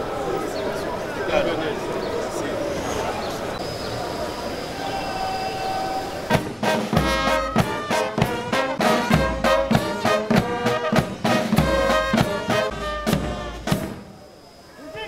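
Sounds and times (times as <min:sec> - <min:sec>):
marching brass band playing: 0:06.2 - 0:14.1
bass drum and snare beats: 0:06.3 - 0:14.0.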